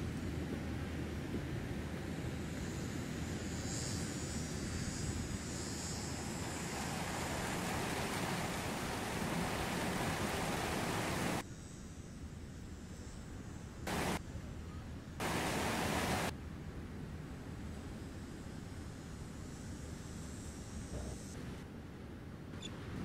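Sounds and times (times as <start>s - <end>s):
faint high hiss: 2.8s - 21.8s
steady rushing noise: 5.8s - 11.4s, 13.9s - 14.2s, 15.2s - 16.3s.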